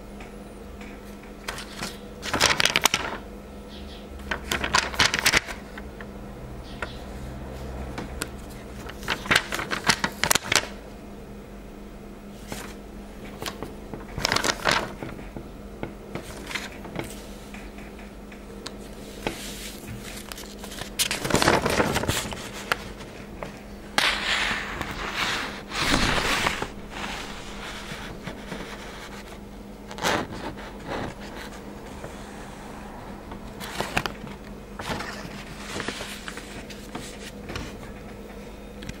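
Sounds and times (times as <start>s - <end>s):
faint steady hum: 0.0s - 39.0s
paper sheet rustling and scraping: 1.5s - 3.2s, 4.3s - 5.8s, 7.5s - 10.7s, 12.3s - 15.4s, 16.1s - 17.4s, 18.8s - 32.6s, 33.3s - 37.8s.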